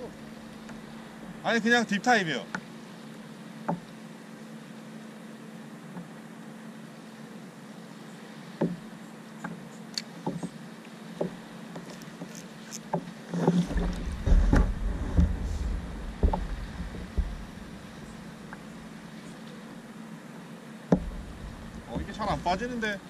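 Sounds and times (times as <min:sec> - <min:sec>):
knocks on kayak hull: 0:13.0 - 0:18.1, 0:20.9 - 0:22.4
low rumbling: 0:13.5 - 0:19.4, 0:20.9 - 0:23.0.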